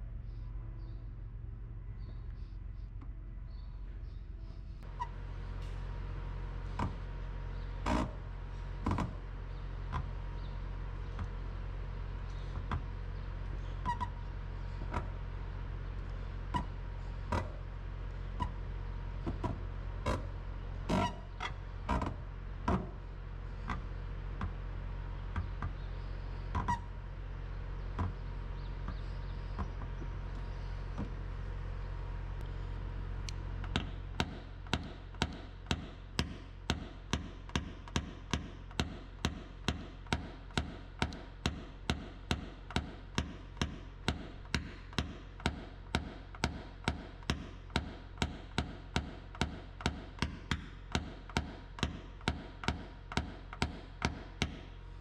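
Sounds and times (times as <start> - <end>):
steady low hum: 0.0 - 55.0
hammer tapping metal punch: 33.7 - 54.7.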